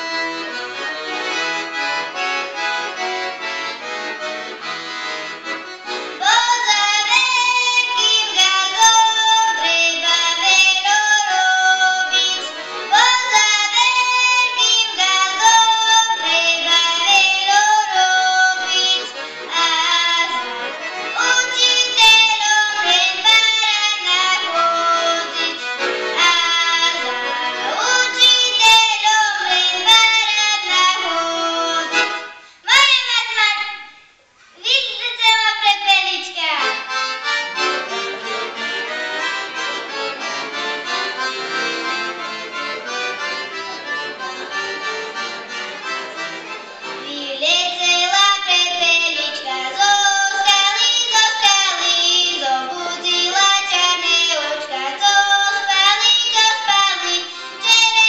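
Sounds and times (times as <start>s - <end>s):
piano accordion: 0.0s - 32.9s, 36.0s - 58.0s
girl singing: 6.2s - 32.1s, 32.7s - 34.0s, 34.6s - 36.9s, 47.0s - 58.0s.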